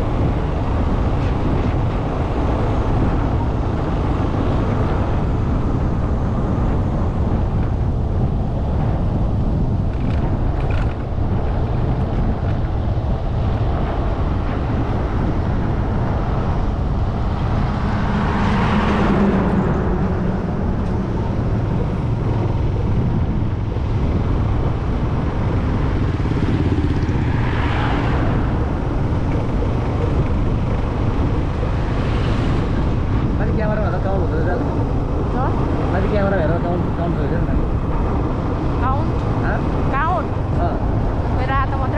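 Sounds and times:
moving road vehicle rumble: 0.0s - 41.9s
road and wind noise: 0.0s - 41.9s.

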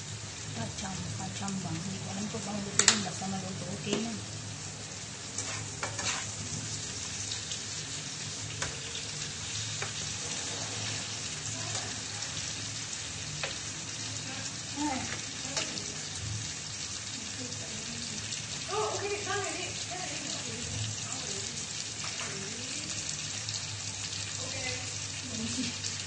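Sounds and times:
food sizzling in a frying pan: 0.0s - 26.0s
spatula scraping and tapping pan: 2.8s - 3.0s, 5.3s - 6.4s, 8.6s - 8.9s, 9.8s - 10.1s, 13.4s - 13.6s.

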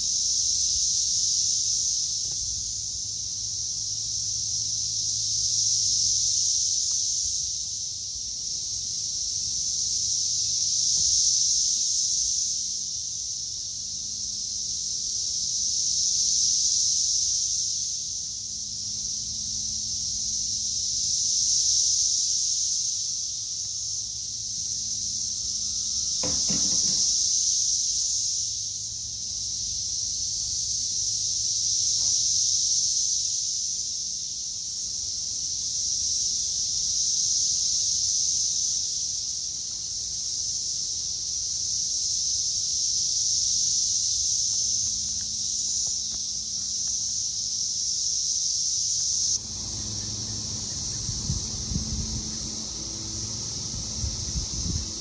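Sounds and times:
cicadas droning: 0.0s - 55.0s
short knock: 26.2s - 27.2s.

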